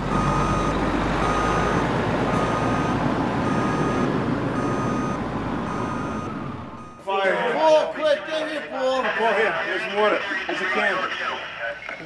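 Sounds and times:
truck engine running: 0:00.0 - 0:07.0
backup alarm beeping: 0:00.1 - 0:07.1.

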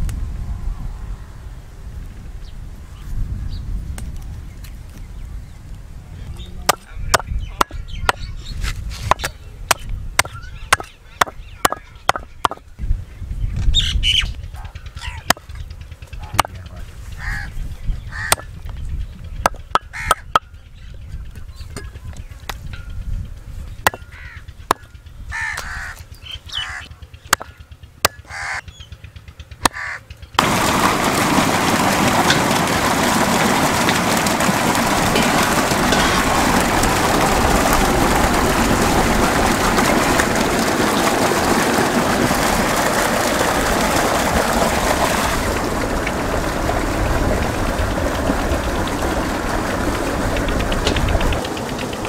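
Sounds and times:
bird calls: 0:06.2 - 0:22.5, 0:23.6 - 0:30.4
water gushing into steel basins: 0:06.7 - 0:12.7, 0:30.4 - 0:52.0.

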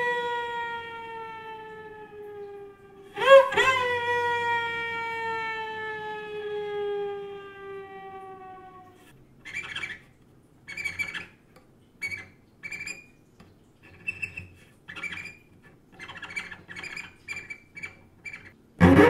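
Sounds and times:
short high cello squeaks: 0:16.0 - 0:19.0.

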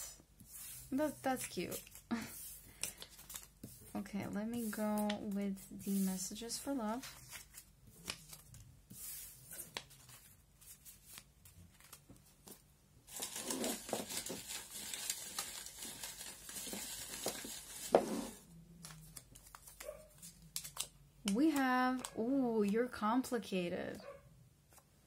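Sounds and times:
paper slips rustling and crinkling: 0:13.1 - 0:18.4.

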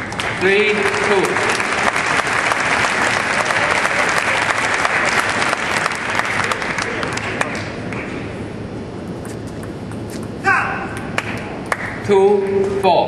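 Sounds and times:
spectators applauding: 0:00.0 - 0:07.6.

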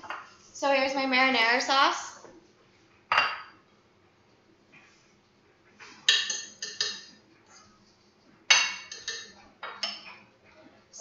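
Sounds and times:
metal utensils clinking on plate: 0:06.1 - 0:07.1, 0:08.5 - 0:10.2.

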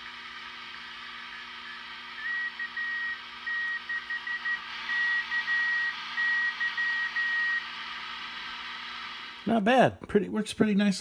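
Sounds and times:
radio band noise hiss: 0:00.0 - 0:11.0
morse code beeps: 0:02.4 - 0:07.6.

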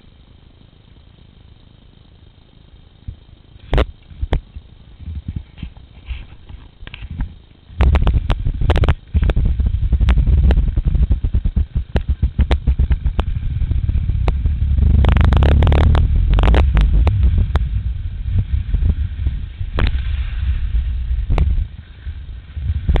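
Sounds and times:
wind buffeting microphone: 0:07.0 - 0:23.0
skis scraping on snow: 0:08.1 - 0:23.0.

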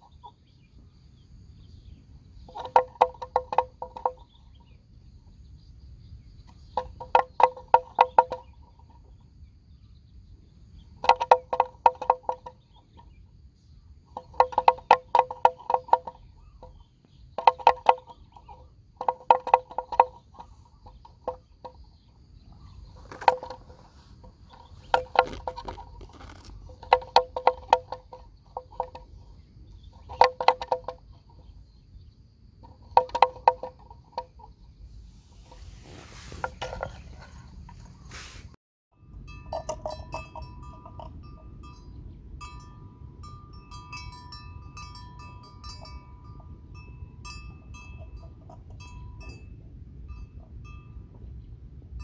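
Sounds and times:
bells clanking: 0:39.0 - 0:52.0
light bell notes tinkling: 0:39.0 - 0:52.0.

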